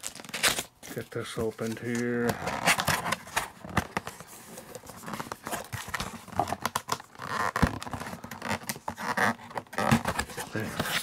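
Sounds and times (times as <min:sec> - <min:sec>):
cardboard scraping and rubbing: 0:00.0 - 0:11.0.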